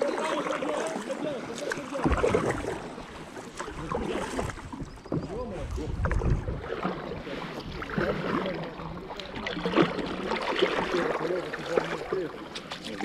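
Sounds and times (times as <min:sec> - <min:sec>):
paddle splashing in water: 0:00.0 - 0:13.0
wind on microphone: 0:04.2 - 0:07.0.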